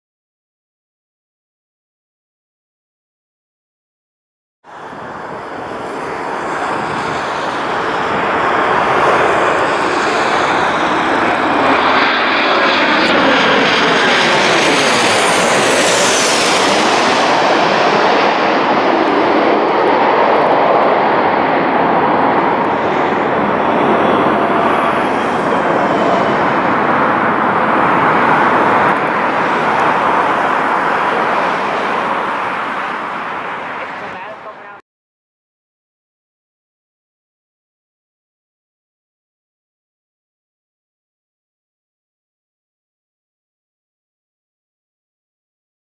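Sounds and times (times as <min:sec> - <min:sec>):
high engine whine dropping in pitch: 0:04.7 - 0:34.6
jet engines passing overhead: 0:04.7 - 0:34.8.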